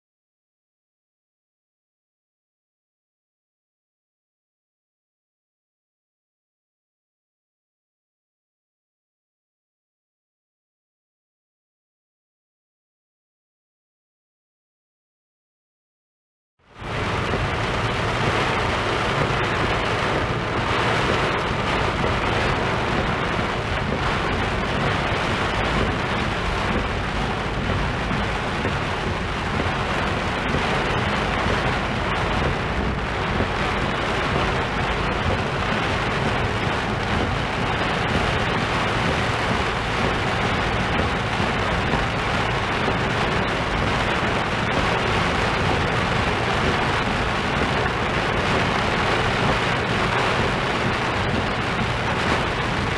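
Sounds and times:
heavy rain on car: 16.7s - 52.9s
tyre noise on wet road: 16.7s - 52.9s.

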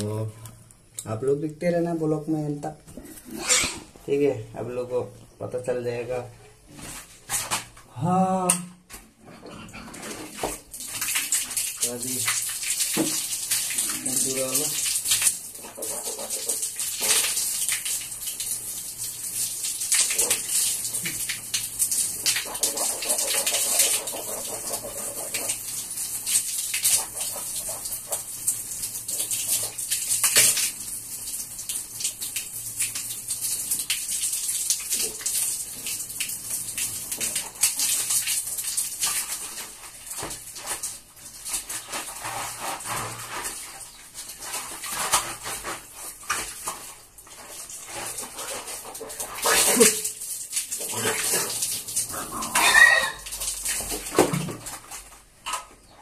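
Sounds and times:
water spattering on floor: 10.0s - 55.6s
water splashing on face: 10.1s - 54.9s.

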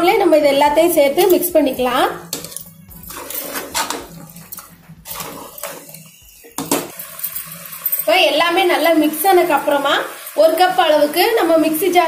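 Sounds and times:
spoon scraping a metal pot: 1.2s - 8.2s.

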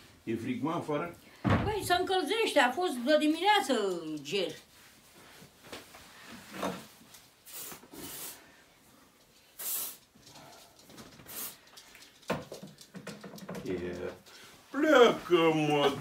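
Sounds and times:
clothes rustling: 1.7s - 8.1s, 13.7s - 16.0s
aerosol spray hissing: 7.4s - 8.5s, 9.6s - 10.1s, 11.3s - 11.6s.

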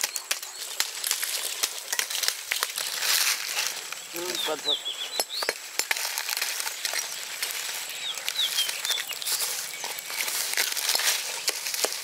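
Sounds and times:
food sizzling in hot oil: 0.0s - 12.0s
bird chirps: 3.9s - 5.6s, 6.6s - 10.5s.

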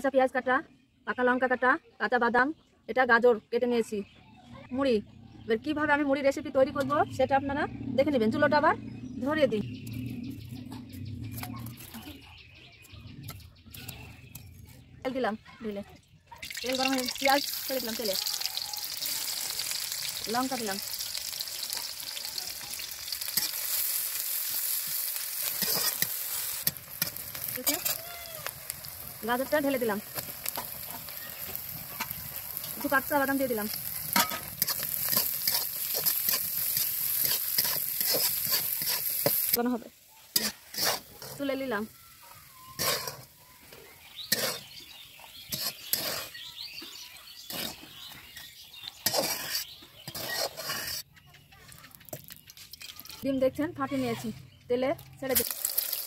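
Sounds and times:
onions sizzling in oil: 16.4s - 51.0s, 55.3s - 56.0s
spatula scraping a wok: 22.8s - 39.6s, 40.2s - 41.7s, 42.4s - 46.7s, 47.4s - 51.1s.

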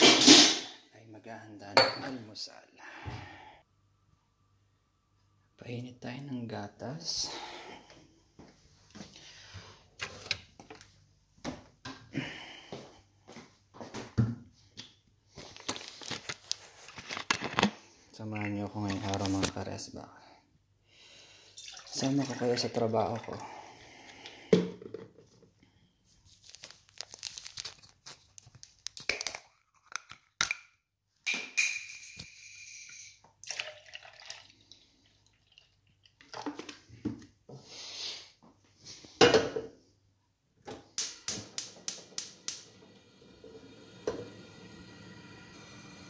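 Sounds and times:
milk pouring into a pot: 21.6s - 23.6s, 33.4s - 36.8s
gas burner hiss: 41.2s - 46.0s.

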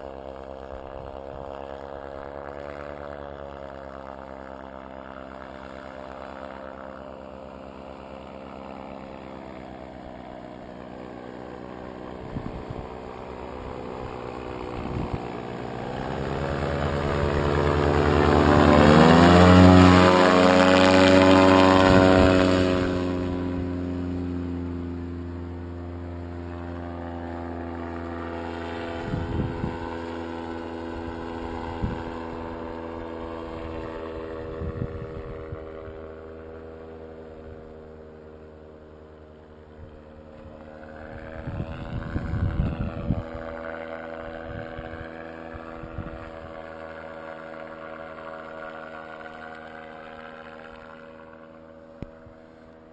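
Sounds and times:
paraglider engine and propeller droning: 0.0s - 52.9s
wind buffeting microphone: 12.2s - 13.1s, 13.9s - 15.8s, 28.9s - 30.0s, 31.0s - 32.5s, 33.6s - 36.1s, 41.1s - 43.6s, 44.2s - 46.5s.

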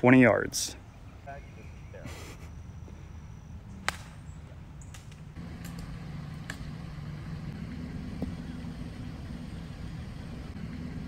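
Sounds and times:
low engine hum: 4.6s - 11.0s.

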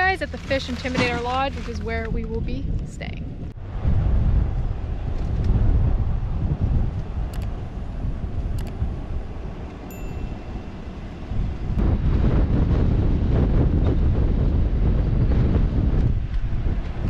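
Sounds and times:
wind buffeting microphone: 0.0s - 17.0s
short bright chime: 9.9s - 10.5s.

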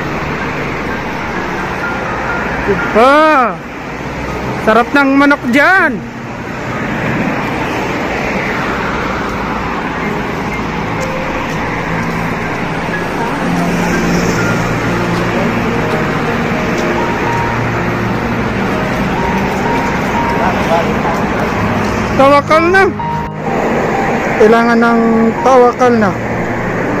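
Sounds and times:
cars passing on road: 0.0s - 27.0s.

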